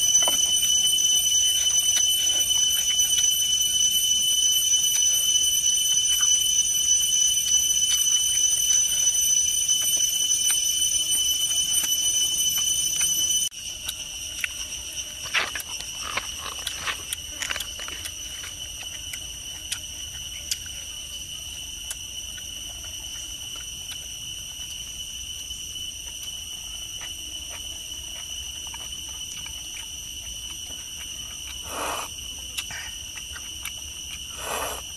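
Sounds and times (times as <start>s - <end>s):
forest insects droning: 0.0s - 34.9s
lip-smacking and chewing: 7.7s - 34.9s.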